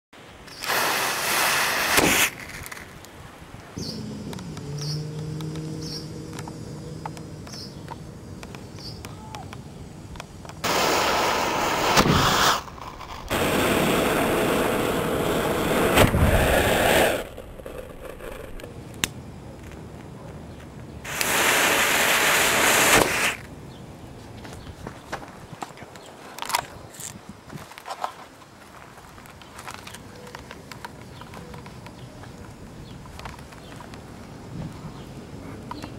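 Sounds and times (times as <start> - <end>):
cannon fuse hissing: 0.5 - 3.2, 10.0 - 18.6, 21.0 - 23.5.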